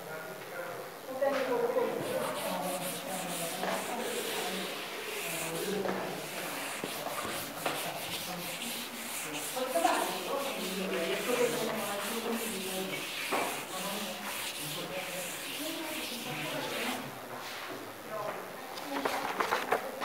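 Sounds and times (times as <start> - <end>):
duster rubbing chalkboard: 1.9 - 17.2.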